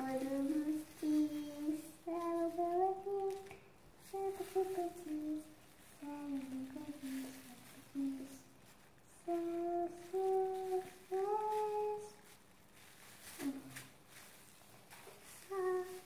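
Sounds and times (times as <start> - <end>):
person humming: 9.2 - 12.2, 13.4 - 13.9, 15.4 - 16.0.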